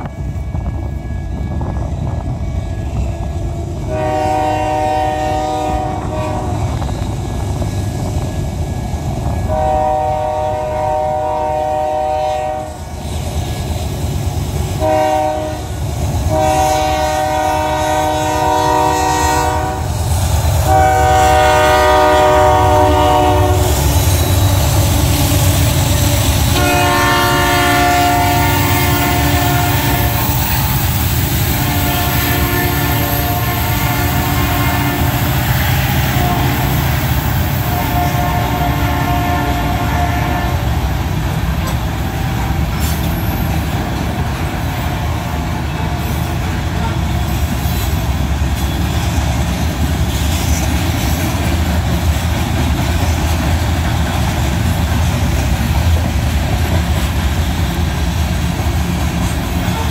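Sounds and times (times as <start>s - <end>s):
locomotive engines rumbling: 0.0s - 59.9s
locomotive air horn blasts: 3.8s - 6.9s, 9.4s - 13.0s, 14.7s - 20.0s, 20.6s - 30.6s, 31.4s - 40.8s, 59.6s - 59.9s
train wheels clattering on rails: 12.6s - 59.9s.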